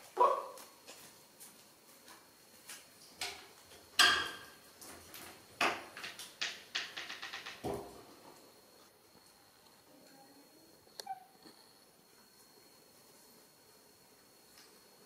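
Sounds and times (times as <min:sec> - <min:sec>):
hard objects clicking and clattering: 0:03.2 - 0:07.9.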